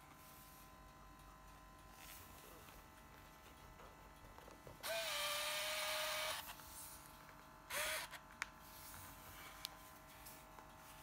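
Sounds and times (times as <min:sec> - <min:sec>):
camera zoom lens whirring: 0:04.8 - 0:06.7, 0:07.7 - 0:08.2.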